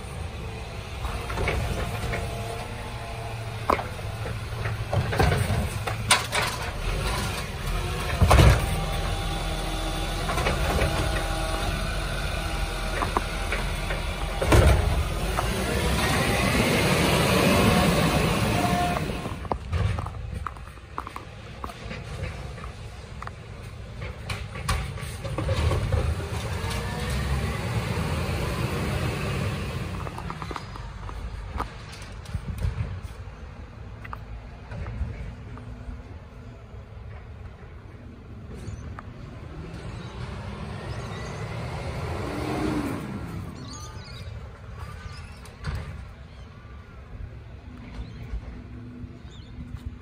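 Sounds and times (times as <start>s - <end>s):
diesel truck engine running: 0.0s - 32.9s
wheelie bin clunks: 3.7s - 9.2s, 12.8s - 16.2s
birds chirping: 43.3s - 50.0s.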